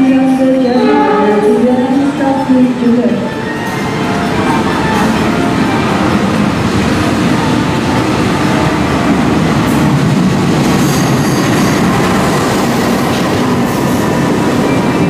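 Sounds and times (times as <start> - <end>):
train engine and wheel rumble: 0.0 - 15.0.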